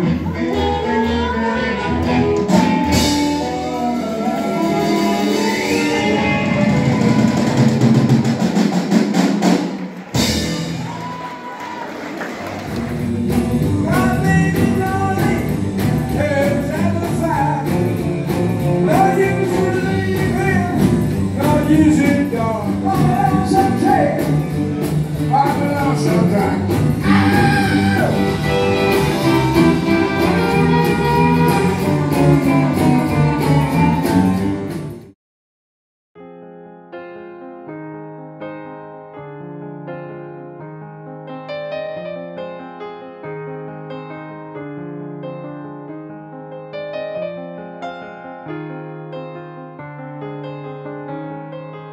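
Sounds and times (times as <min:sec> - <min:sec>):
live rock and roll band: 0:00.0 - 0:35.1
lead singer singing: 0:25.3 - 0:34.6.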